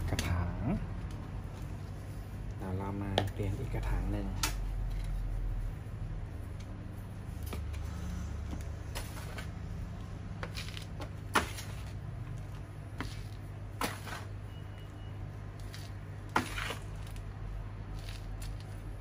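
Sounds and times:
steady low hum: 0.0s - 19.0s
plastic pots scraping and rustling: 7.4s - 9.7s, 10.4s - 12.1s, 13.0s - 14.4s, 15.6s - 19.0s.

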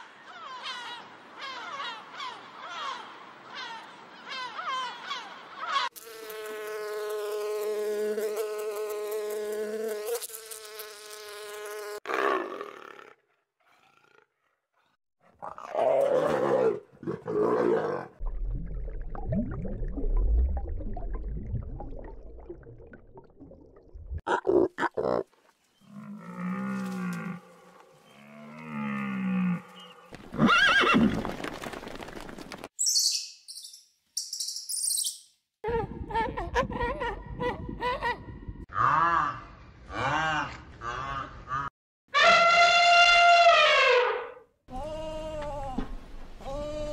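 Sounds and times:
bee buzzing: 5.9s - 12.0s.

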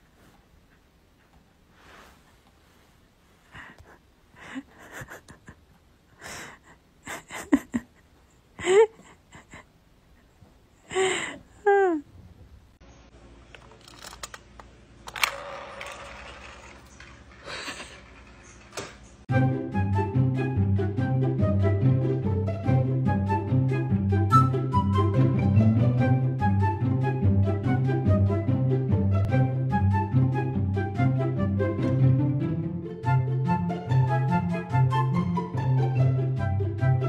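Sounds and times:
bedding rustling and clicks: 13.5s - 19.3s
light music: 19.3s - 37.0s.

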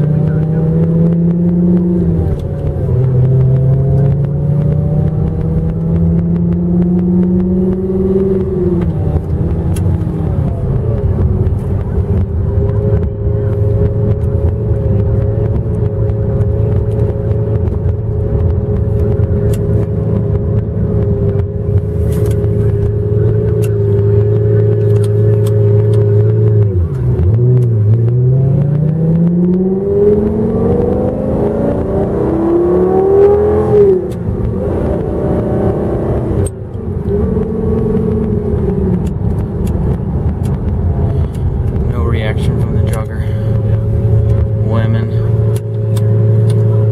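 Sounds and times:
car engine droning and accelerating: 0.0s - 46.9s.

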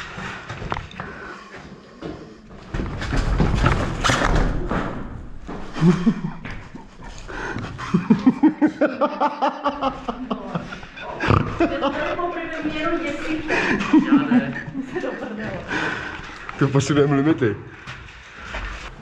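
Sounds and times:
rustling and thudding: 2.5s - 7.1s
man laughing: 5.8s - 12.1s, 13.5s - 14.9s.

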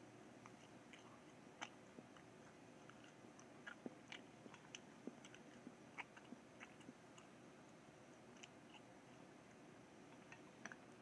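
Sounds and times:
person chewing tissue paper: 0.3s - 11.0s
small irregular clicks: 0.4s - 7.4s, 8.2s - 8.9s.

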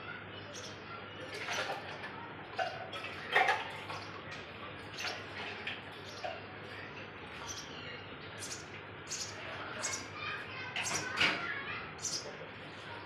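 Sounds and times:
nestlings begging cheeps: 7.4s - 11.2s, 11.8s - 12.4s.

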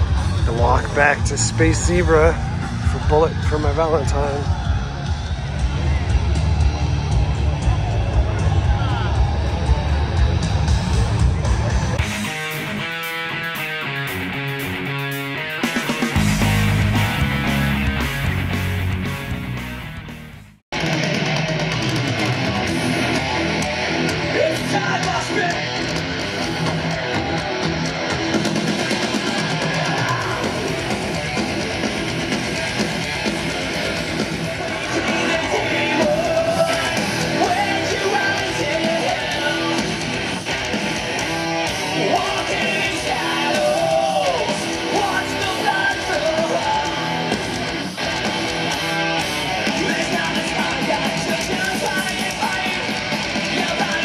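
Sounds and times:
electric guitars: 0.0s - 54.0s
heavy rock band playing: 0.0s - 54.0s
person singing: 34.4s - 40.2s, 41.8s - 47.3s, 49.6s - 54.0s.

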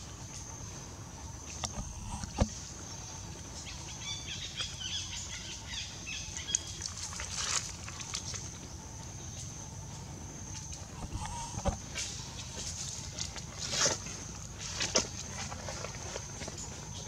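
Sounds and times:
high-pitched hum: 1.4s - 3.8s, 10.0s - 13.0s
faint chirps: 7.9s - 12.7s.

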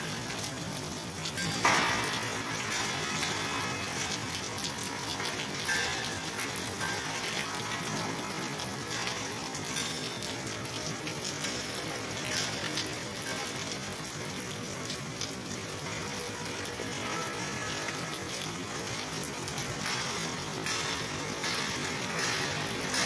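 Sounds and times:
steady rain: 0.0s - 23.0s.

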